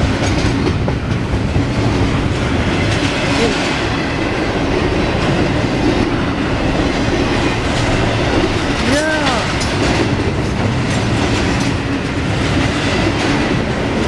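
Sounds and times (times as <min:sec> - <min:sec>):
train wheels rolling on rails: 0:00.0 - 0:14.0.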